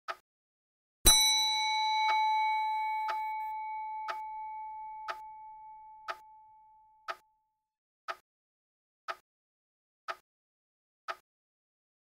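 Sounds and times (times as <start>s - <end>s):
clock bell ringing: 1.1s - 6.8s
clock ticking: 2.0s - 6.3s, 7.0s - 7.2s.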